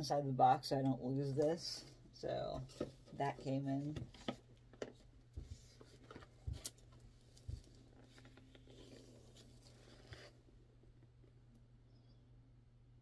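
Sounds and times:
rustling paper and packaging: 5.4s - 10.4s.

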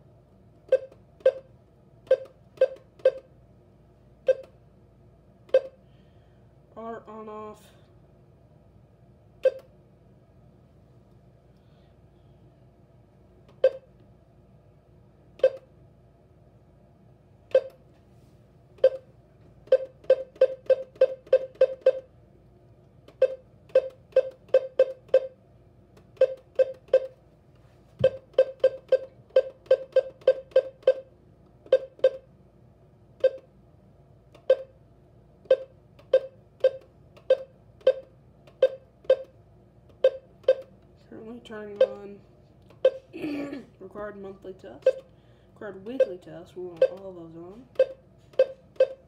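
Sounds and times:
short keypress beeps: 0.7s - 1.5s, 2.1s - 3.3s, 4.2s - 4.6s, 5.5s - 5.8s, 9.4s - 9.7s, 13.6s - 13.9s, 15.4s - 15.7s, 17.5s - 17.8s, 19.7s - 22.1s, 23.2s - 25.4s, 26.2s - 27.1s, 28.0s - 31.1s, 31.7s - 32.2s, 33.2s - 33.5s, 34.4s - 34.7s, 35.5s - 39.3s, 40.0s - 40.7s, 44.8s - 45.1s, 47.7s - 49.0s.

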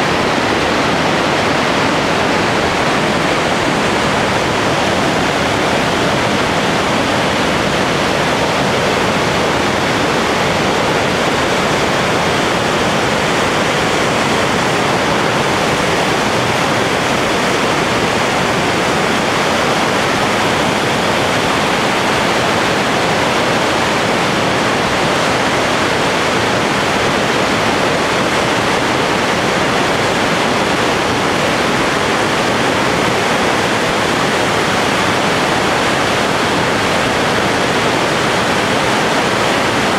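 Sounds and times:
river rushing over rocks: 0.0s - 39.9s.

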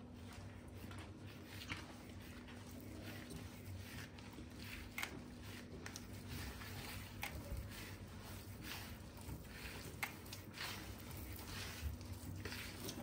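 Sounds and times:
hands kneading dough: 0.0s - 13.0s.

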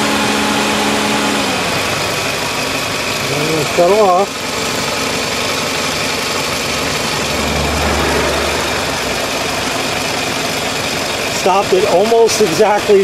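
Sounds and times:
car engine idling: 0.0s - 13.0s
low hum: 6.6s - 10.8s.

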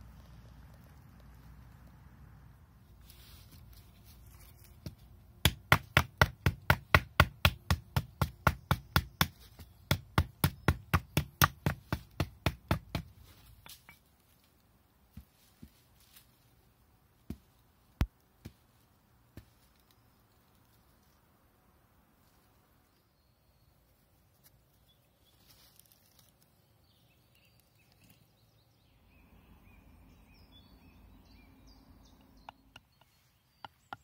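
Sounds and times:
stone knocking on wooden branch: 4.6s - 14.1s.

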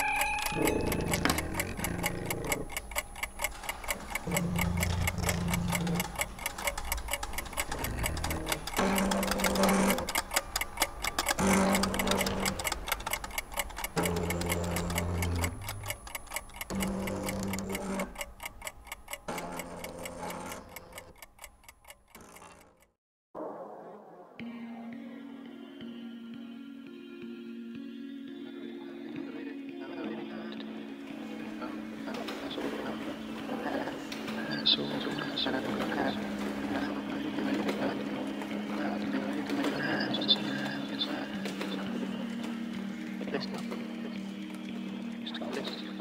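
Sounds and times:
credits music: 0.0s - 2.1s
clock-like ticking: 0.0s - 22.9s.

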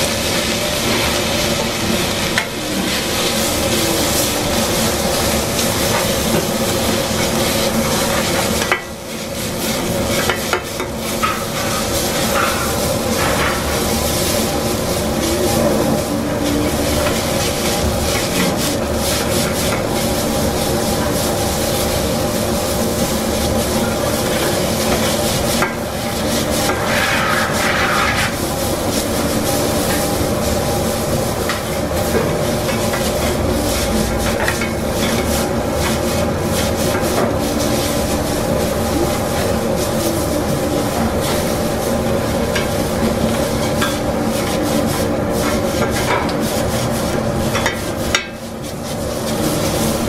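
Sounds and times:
noodles sizzling: 0.0s - 50.0s
metal spatulas scraping on griddle: 7.0s - 22.2s, 23.5s - 30.8s, 39.3s - 50.0s.

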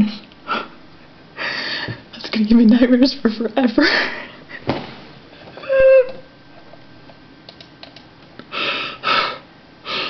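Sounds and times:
person whimpering: 5.6s - 6.3s.

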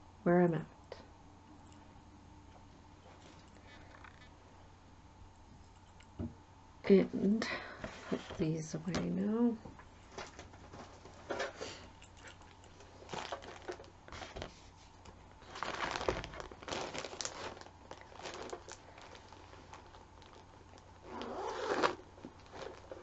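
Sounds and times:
plastic bag crinkling: 10.1s - 14.7s, 15.4s - 23.0s.

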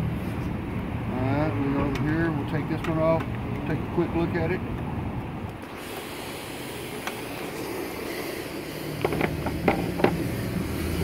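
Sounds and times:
vacuum motor clicks and knocks: 9.0s - 10.3s.

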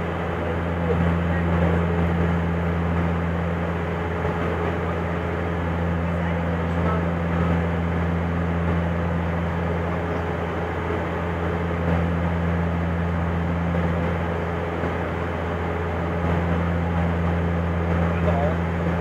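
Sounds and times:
turboprop engine drone: 0.0s - 19.0s.

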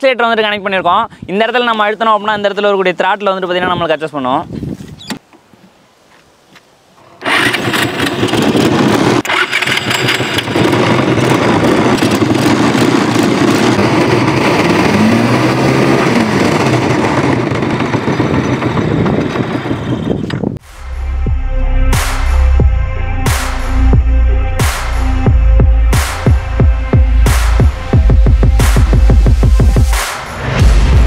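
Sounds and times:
motorcycle engine running: 7.2s - 20.3s, 25.3s - 30.0s.

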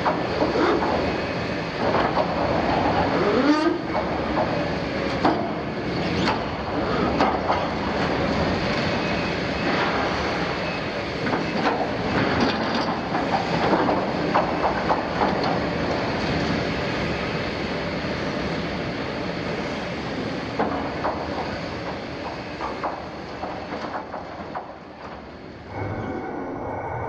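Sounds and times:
excavator running under load: 0.0s - 27.0s
steel screeching: 25.7s - 27.0s.

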